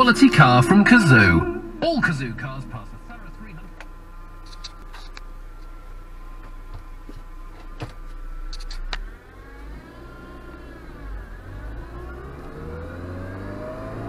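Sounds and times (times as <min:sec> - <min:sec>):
car engine accelerating: 0:00.0 - 0:14.0
sharp gear change clicks: 0:08.5 - 0:09.1.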